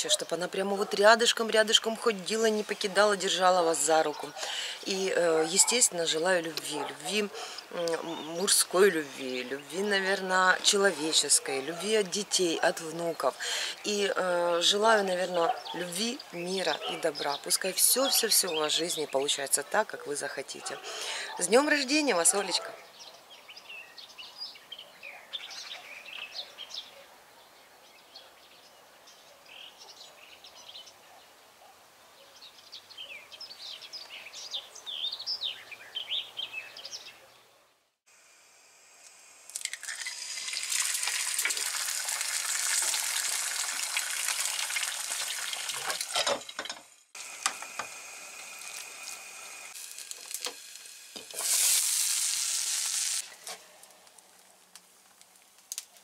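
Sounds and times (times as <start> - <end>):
small birds chirping: 0.0 - 19.5, 22.2 - 37.7
eggs sizzling in a pan: 39.0 - 54.5.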